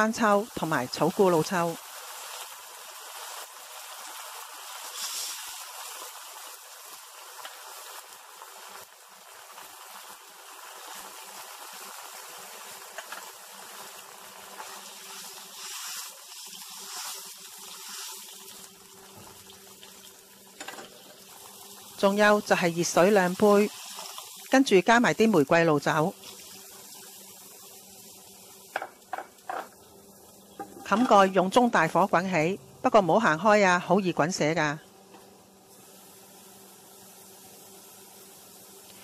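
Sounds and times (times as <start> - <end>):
sauce sizzling in a wok: 0.0 - 33.8, 34.8 - 39.0.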